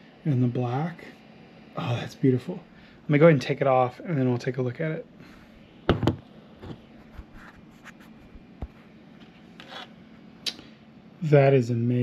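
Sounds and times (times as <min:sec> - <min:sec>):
light scraping: 0:06.6 - 0:10.0.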